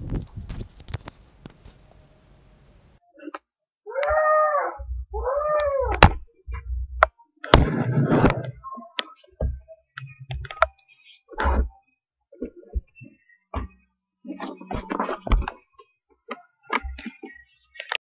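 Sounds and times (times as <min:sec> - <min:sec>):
cat meowing: 0:03.9 - 0:06.0.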